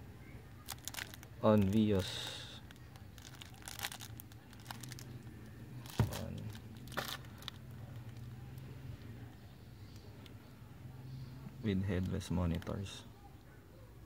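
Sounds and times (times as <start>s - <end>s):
steady low hum: 0.0s - 14.0s
plastic wrapper crinkling: 0.5s - 8.3s, 12.0s - 12.9s.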